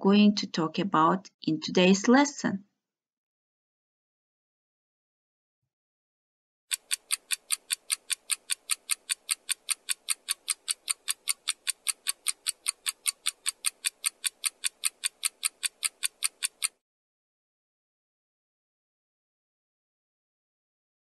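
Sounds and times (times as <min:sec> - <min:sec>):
clock ticking fast: 0:06.7 - 0:16.8.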